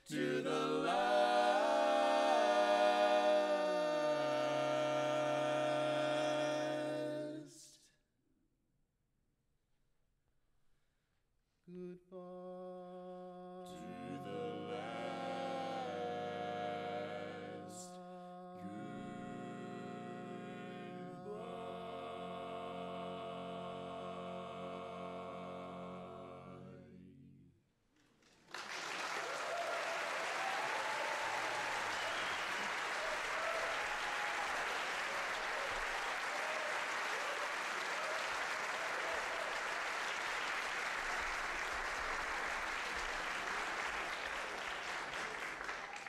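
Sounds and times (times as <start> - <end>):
barbershop quartet holding chord: 13.8 - 17.8, 18.6 - 26.8
audience applause: 28.2 - 46.0
audience whoops: 28.6 - 46.0.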